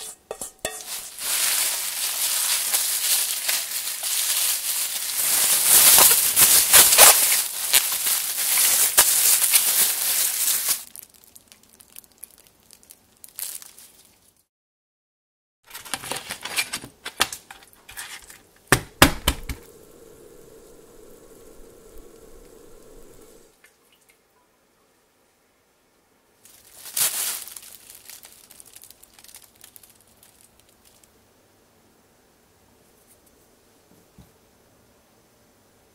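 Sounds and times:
faint steady hiss: 0.0 - 14.5, 16.9 - 35.9
plastic bag crinkling: 0.6 - 14.4, 26.5 - 31.1.

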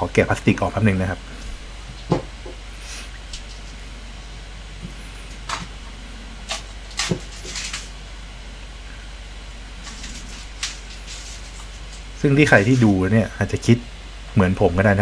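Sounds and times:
plastic wrap crackling and rustling: 6.4 - 8.0, 9.8 - 13.0.

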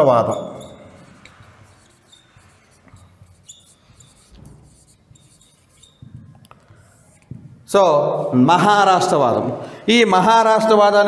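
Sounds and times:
marker squeaking on whiteboard: 0.0 - 7.7.

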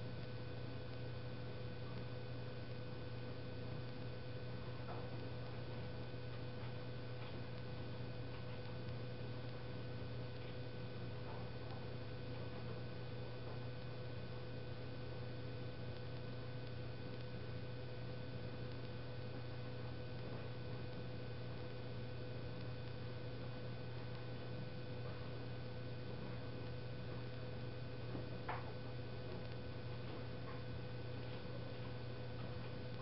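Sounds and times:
faint high-pitched whine: 0.0 - 33.0
low electrical hum: 0.0 - 33.0
faint tick: 18.7 - 19.0.

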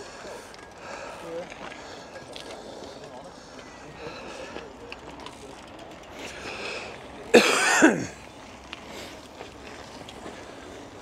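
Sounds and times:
person coughing: 7.3 - 8.2.

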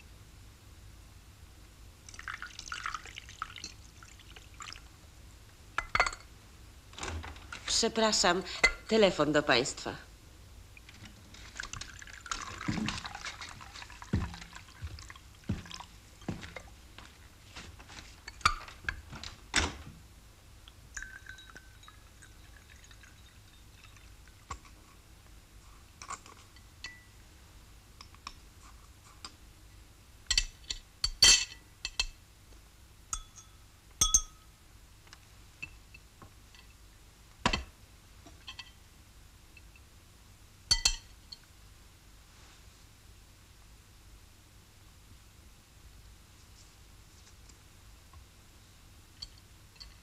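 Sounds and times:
glassware and dishes clinking: 5.8 - 6.3, 20.9 - 24.0, 26.8 - 27.1, 30.3 - 32.2, 33.1 - 34.5, 38.4 - 38.8, 40.7 - 41.4, 49.2 - 50.0.

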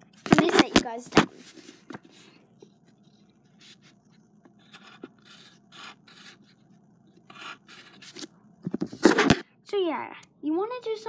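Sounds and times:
pencil scratching on paper: 1.4 - 8.3.

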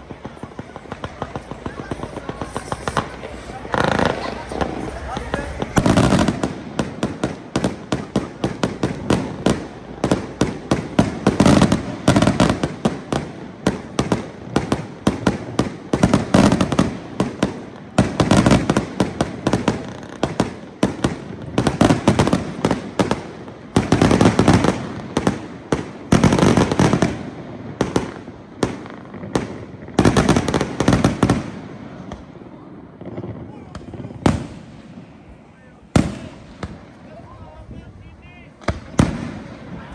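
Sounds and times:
fireworks bangs and pops: 0.0 - 39.9.

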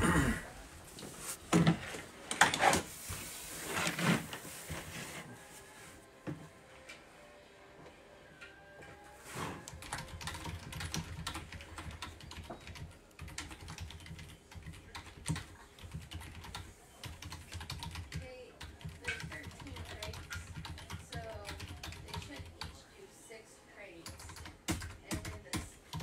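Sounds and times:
computer keyboard typing: 9.7 - 22.8, 24.0 - 26.0.

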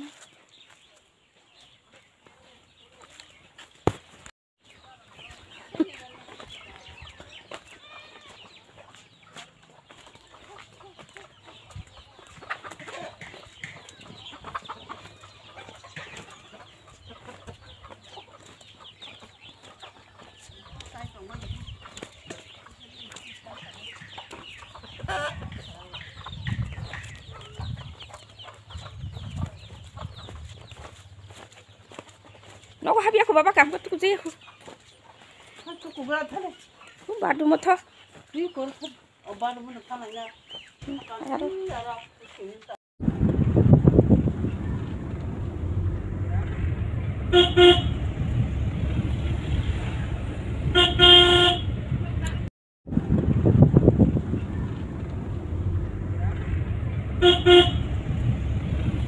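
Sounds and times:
chickens clucking: 0.0 - 42.8
low thumps: 43.0 - 59.0.

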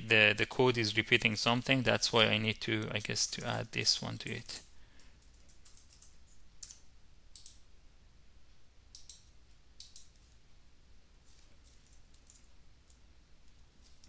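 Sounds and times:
keyboard and mouse clicks: 5.0 - 7.6, 8.9 - 10.3, 11.6 - 14.0.

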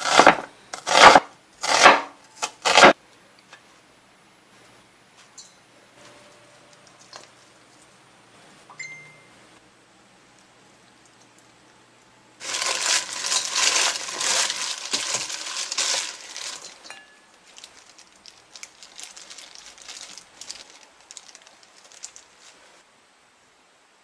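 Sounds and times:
vegetables crackling in a steel bowl: 0.0 - 3.0, 12.4 - 22.8.

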